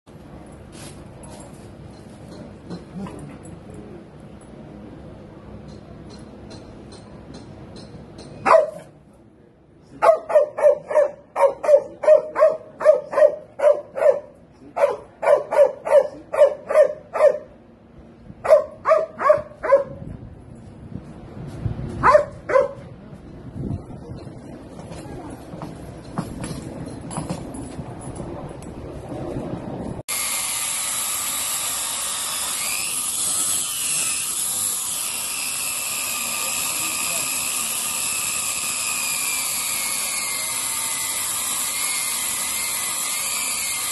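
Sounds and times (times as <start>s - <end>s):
dog barking: 8.4s - 8.9s, 10.0s - 17.5s, 18.4s - 20.0s, 22.0s - 22.8s
angle grinder cutting metal: 30.1s - 43.9s.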